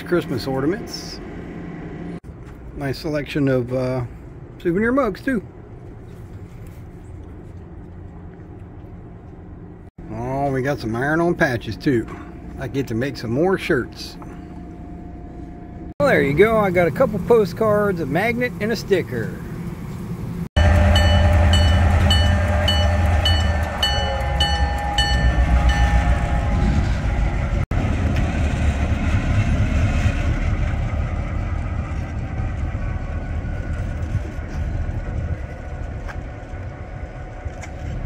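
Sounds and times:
diesel locomotive engine rumble: 0.0 - 38.0
train wheels rumbling: 19.5 - 38.0
train bell ringing rapidly: 20.6 - 26.8.

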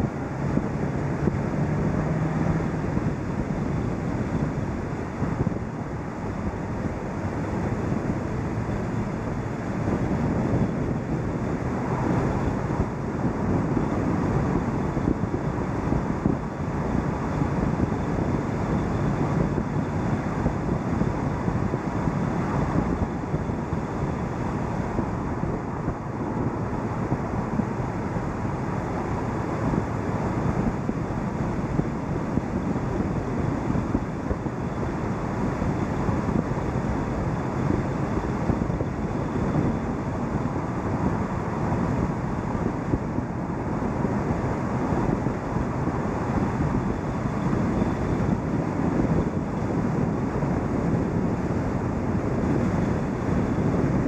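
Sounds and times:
tyre noise on road: 0.0 - 54.0
wind rush on microphone: 0.0 - 54.0.

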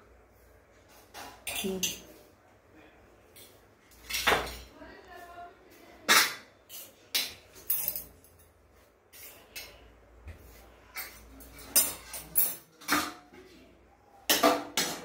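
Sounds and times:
spoon clinking on steel plates: 1.1 - 2.1, 6.6 - 9.9, 10.9 - 13.3.

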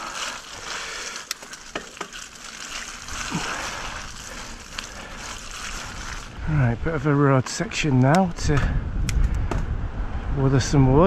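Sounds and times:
bike tyre and wind rushing: 0.0 - 11.0.

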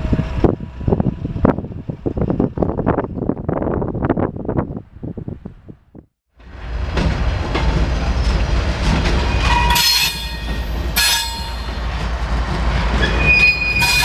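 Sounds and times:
locomotive engine rumble: 0.0 - 14.0
train wheels squealing: 9.2 - 11.8, 12.8 - 14.0.

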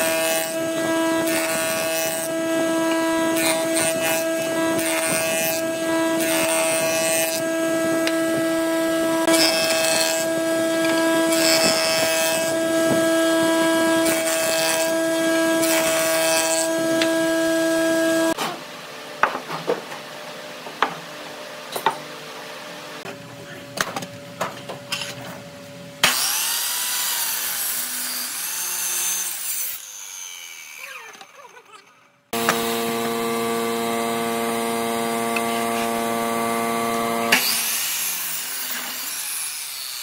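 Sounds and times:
jointer whining: 0.0 - 18.4, 30.7 - 39.1
wood cutting rasps: 0.0 - 18.4, 26.0 - 40.0.

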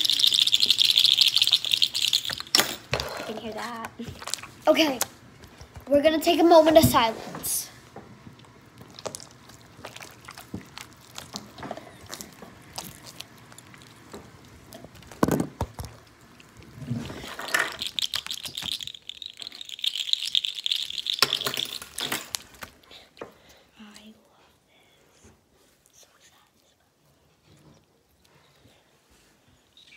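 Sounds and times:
slime squelching: 3.4 - 6.8, 8.3 - 22.9.

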